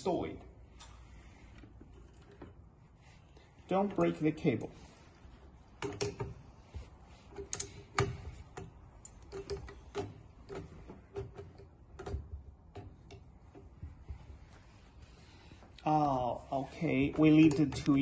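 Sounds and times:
metal clicks and ticks: 5.8 - 6.4, 7.3 - 13.8, 17.0 - 18.0.

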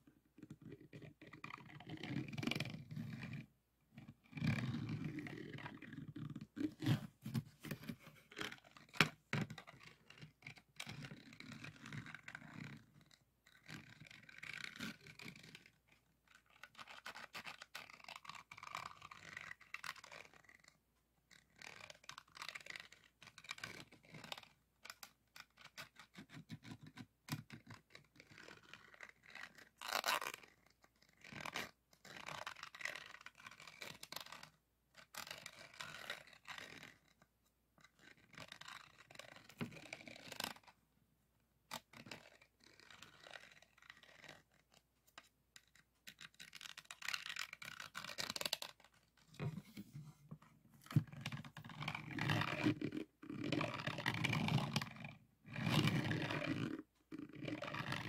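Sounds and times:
scratching over resin beads: 50.9 - 58.0.

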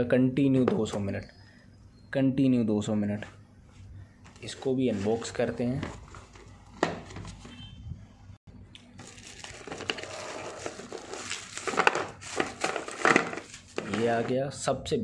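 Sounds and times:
tissue paper crinkling: 9.0 - 14.2.

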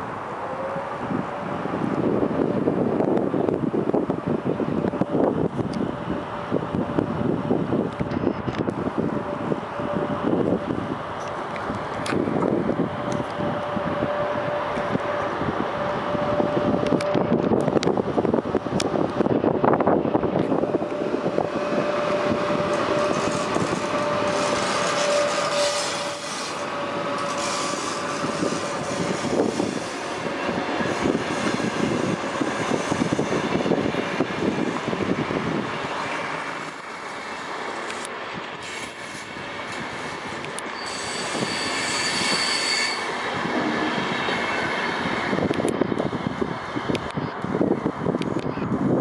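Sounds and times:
locomotive whine: 0.0 - 48.4
train wheels on rails: 0.0 - 49.0
wheel squeal: 21.5 - 33.5, 38.6 - 44.7.

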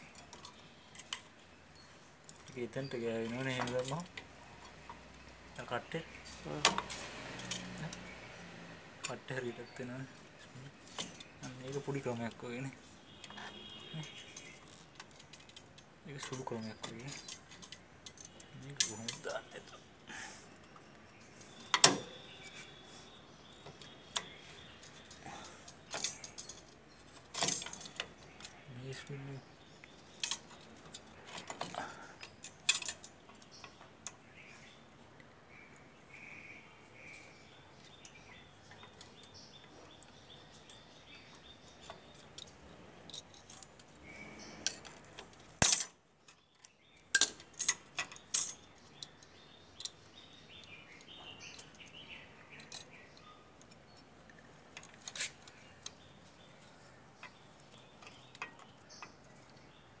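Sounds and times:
metallic clicks and clinks: 6.7 - 8.1, 14.0 - 19.7, 23.8 - 29.1, 29.9 - 34.2, 44.6 - 56.1.

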